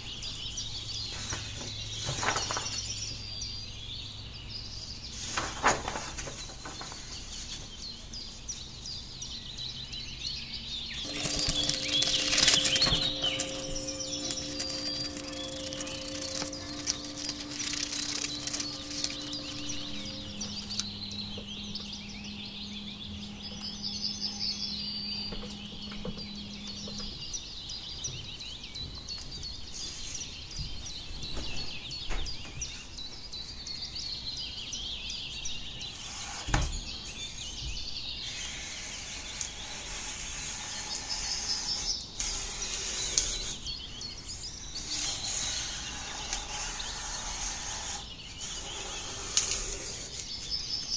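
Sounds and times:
small birds chirping and twittering: 0:00.0 - 0:50.9.

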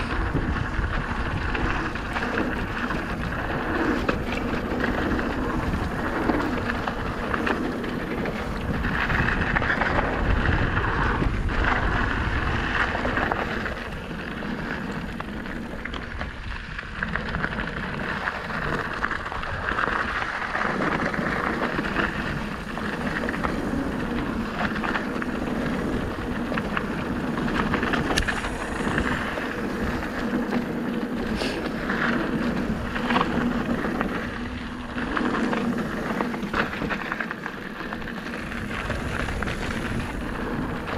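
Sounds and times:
bike clicks and rattles: 0:00.0 - 0:40.9
tyres on gravel: 0:00.0 - 0:40.9
wind buffeting microphone: 0:00.0 - 0:40.9.

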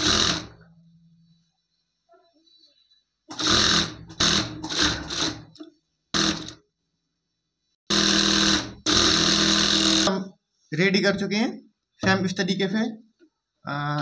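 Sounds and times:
sewing machine stitching: 0:00.0 - 0:00.6, 0:03.3 - 0:06.6, 0:07.9 - 0:10.2.

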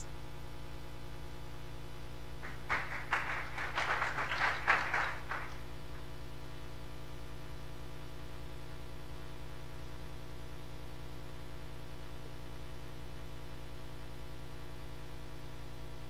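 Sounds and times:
low electrical hum: 0:00.0 - 0:16.0
audience applause: 0:02.4 - 0:05.6.

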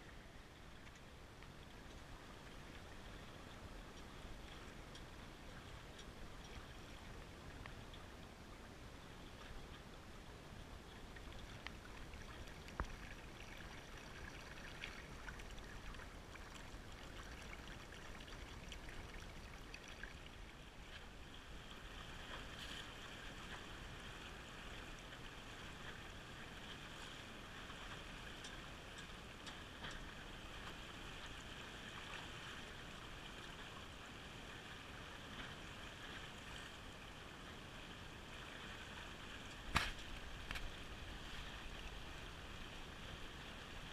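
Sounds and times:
water rushing along boat hull: 0:00.0 - 0:43.9
faint ticks: 0:00.6 - 0:08.4, 0:10.6 - 0:20.2, 0:27.9 - 0:31.5.

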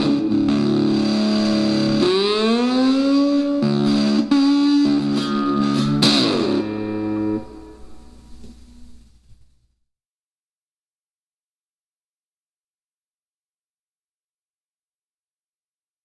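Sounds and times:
cigar box guitar through amplifier: 0:00.0 - 0:09.6.

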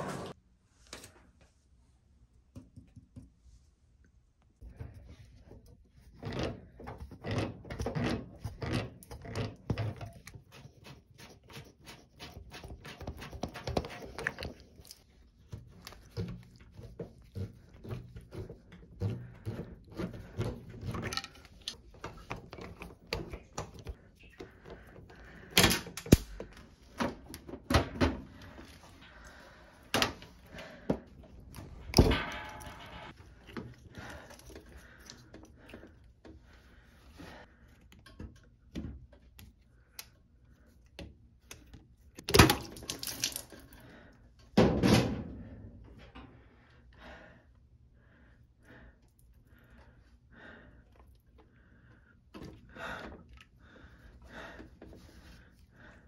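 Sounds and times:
knocks and clunks of metal fittings: 0:30.9 - 0:33.8.

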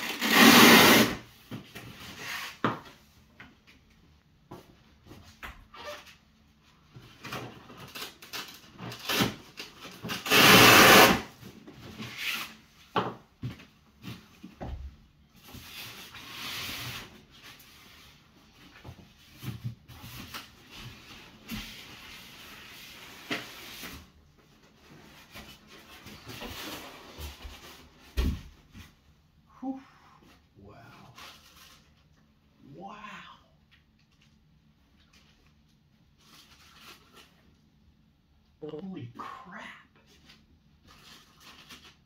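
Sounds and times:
strap tearing: 0:00.0 - 0:01.2, 0:07.9 - 0:11.3.

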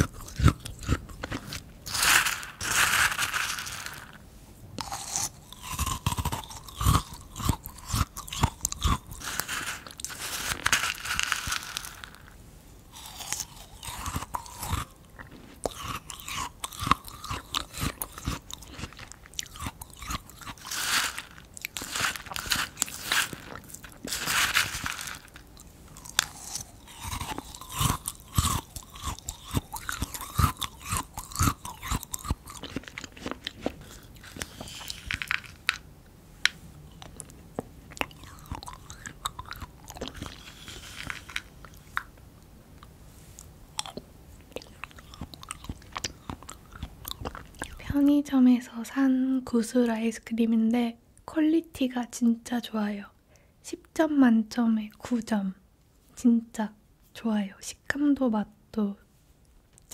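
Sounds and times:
crunching and chewing ice cream: 0:00.0 - 0:35.9, 0:36.5 - 0:48.0.

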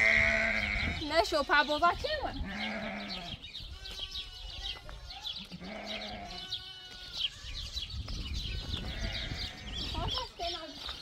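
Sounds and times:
sheep or goat bleating: 0:00.0 - 0:01.1, 0:02.4 - 0:04.7, 0:05.4 - 0:07.8, 0:08.7 - 0:10.0.

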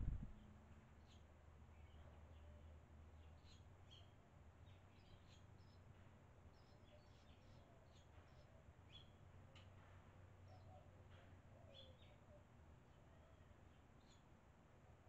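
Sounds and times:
steady low hum: 0:00.0 - 0:00.4.

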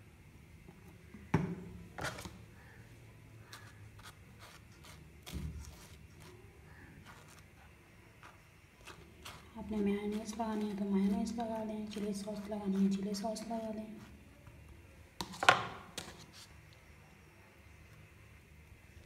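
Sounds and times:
knife scraping bread: 0:03.5 - 0:14.2.

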